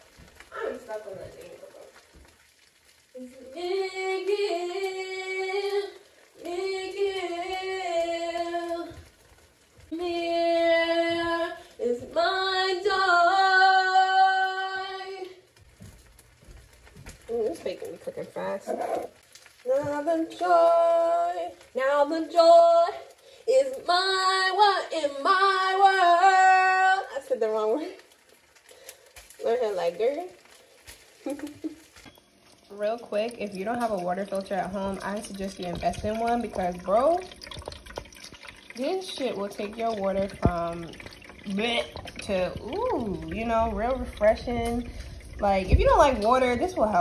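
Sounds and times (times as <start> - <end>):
woman singing unaccompanied: 3.2 - 9.0, 9.9 - 15.5, 19.6 - 28.0.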